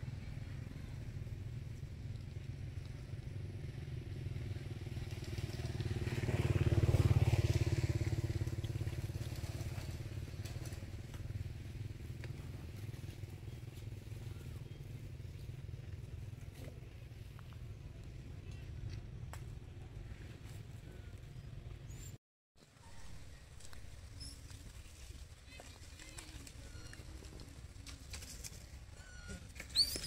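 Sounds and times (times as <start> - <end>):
vehicle engine passing: 3.3 - 11.0.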